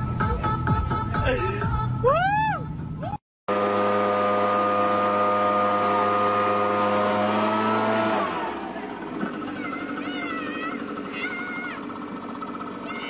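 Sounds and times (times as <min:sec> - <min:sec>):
leaf blower engine: 0:03.5 - 0:13.0
high-pitched voice crying out: 0:09.5 - 0:11.9, 0:12.8 - 0:13.0.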